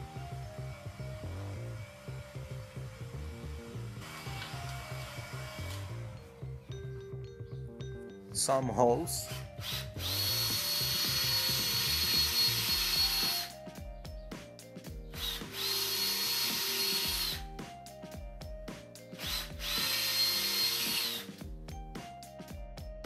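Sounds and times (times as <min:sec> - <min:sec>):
cordless drill motor whine: 0:00.0 - 0:06.3, 0:09.3 - 0:13.5, 0:15.2 - 0:17.5, 0:19.2 - 0:21.3.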